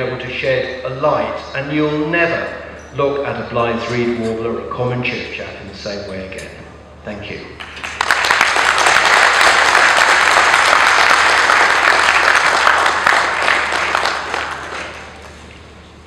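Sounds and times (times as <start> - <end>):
audience applauding: 7.6 - 15.6.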